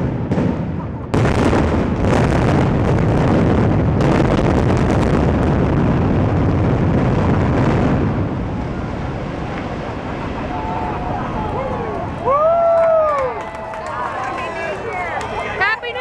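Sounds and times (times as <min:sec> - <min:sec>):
building collapse rumble: 0:00.0 - 0:15.6.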